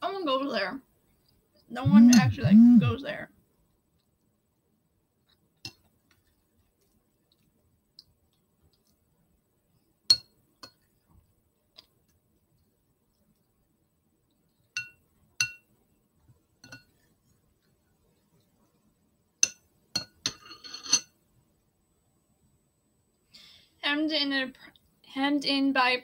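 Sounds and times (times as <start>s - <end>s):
dishware clinking: 19.4s - 21.1s.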